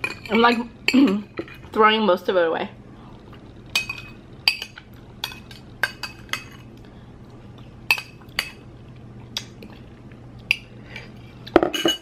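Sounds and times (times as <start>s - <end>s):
metal spoon clinking on bowl: 11.6s - 12.0s.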